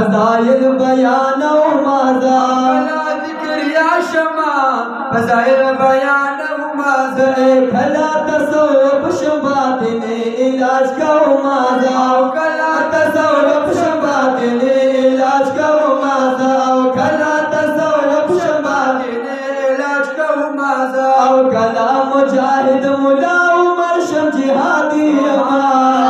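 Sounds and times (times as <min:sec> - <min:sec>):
man singing unaccompanied: 0:00.0 - 0:26.0.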